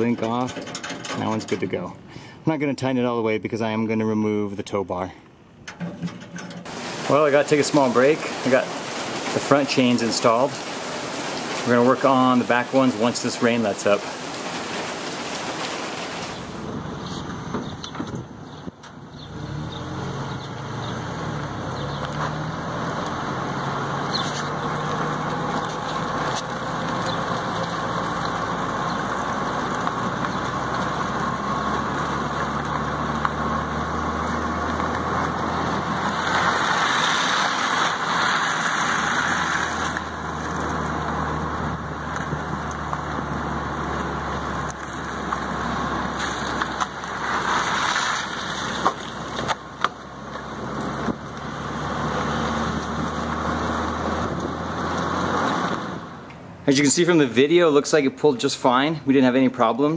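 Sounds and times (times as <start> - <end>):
truck engine running low: 5.9 - 57.4
tyre and wind rush: 6.6 - 19.6.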